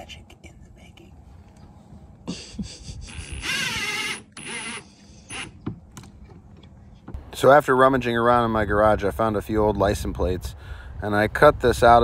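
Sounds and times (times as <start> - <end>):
drill driving screws into wood: 3.3 - 5.6.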